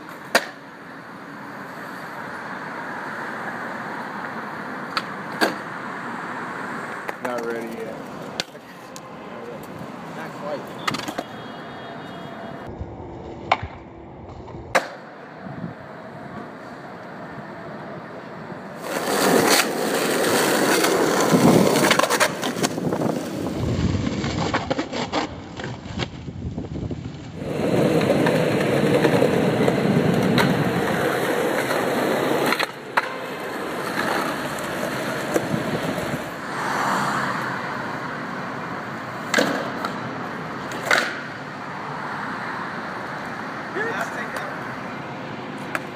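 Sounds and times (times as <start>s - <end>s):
skateboard clacks: 0.0s - 0.7s, 4.2s - 5.7s, 7.0s - 8.8s, 10.6s - 11.4s, 13.4s - 13.8s, 14.7s - 15.2s, 18.8s - 26.2s, 27.3s - 36.4s, 39.0s - 41.4s, 45.6s - 45.9s
skateboard wheels rolling on pavement: 0.0s - 45.9s.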